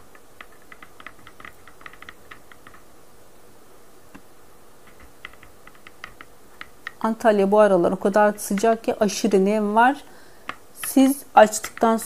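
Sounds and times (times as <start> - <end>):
rolling pin clicking on board: 0.1 - 2.8, 4.8 - 7.0.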